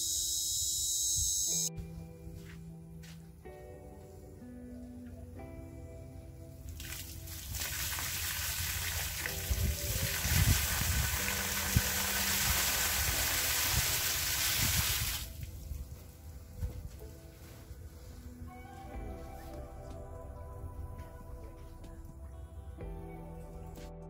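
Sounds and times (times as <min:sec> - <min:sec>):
rainwater gushing and splashing: 0:06.8 - 0:15.8.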